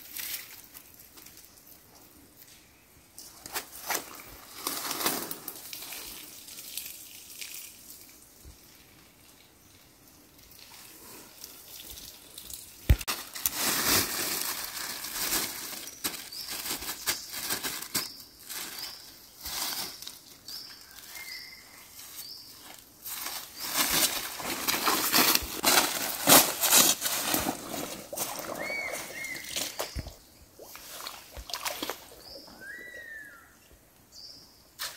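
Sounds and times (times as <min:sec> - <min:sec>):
leaves crunching under footsteps: 0:12.9 - 0:30.1.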